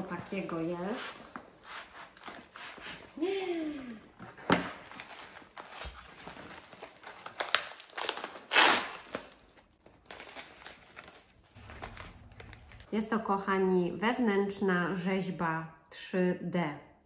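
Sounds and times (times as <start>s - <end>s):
cardboard box packing rustling: 9.5s - 12.8s.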